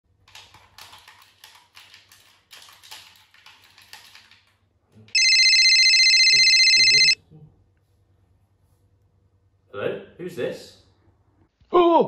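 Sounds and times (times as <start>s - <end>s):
phone ringtone: 5.2s - 7.2s.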